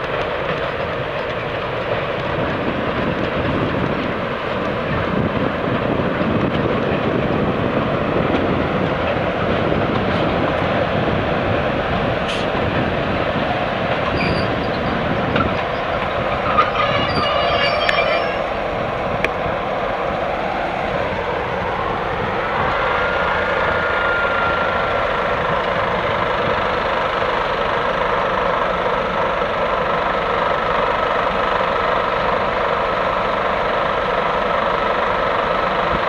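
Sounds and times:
diesel passenger train passing: 0.0 - 36.0.

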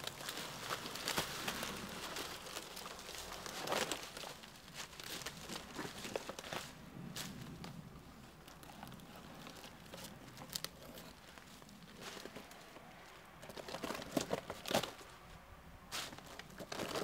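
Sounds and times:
dry leaves crunching underfoot: 0.0 - 7.6
dry wood cracking and tearing: 0.0 - 15.2, 16.1 - 17.0.

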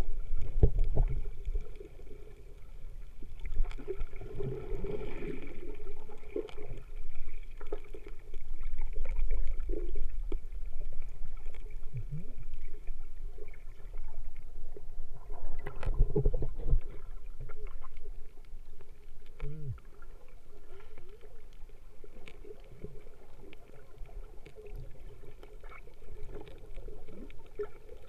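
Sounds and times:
muffled underwater rumble: 0.0 - 28.0
small underwater clicks and knocks: 0.0 - 28.0.

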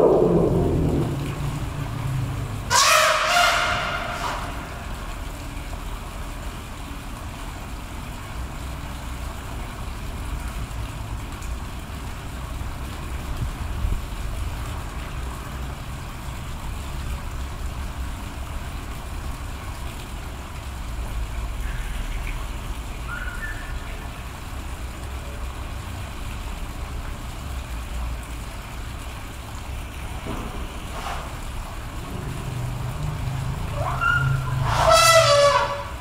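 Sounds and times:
low outdoor rumble: 0.0 - 36.0.

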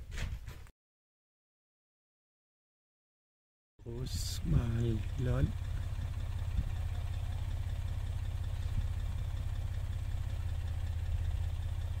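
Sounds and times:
engine idling: 3.8 - 12.0.

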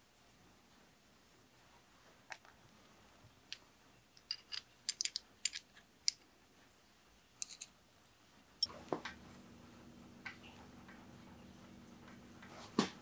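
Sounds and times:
small metal brake parts clicking: 4.2 - 6.2, 7.4 - 7.7.

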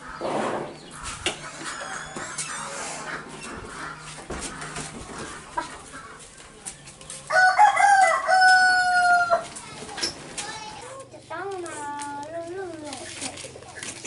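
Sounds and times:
rooster crowing: 7.3 - 9.4.

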